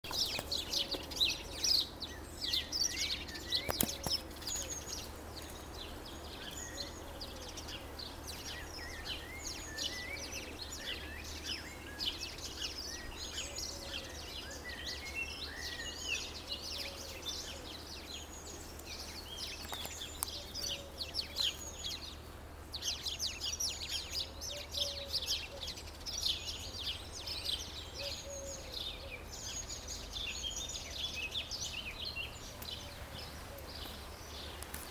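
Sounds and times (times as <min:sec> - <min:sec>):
songbirds chorus: 0:00.0 - 0:34.9.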